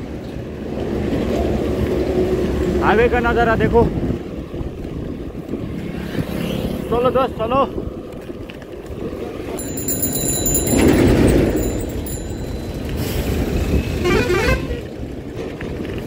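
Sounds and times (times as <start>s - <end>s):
highway traffic passing: 9.5s - 15.5s
vehicle horn: 13.9s - 14.9s.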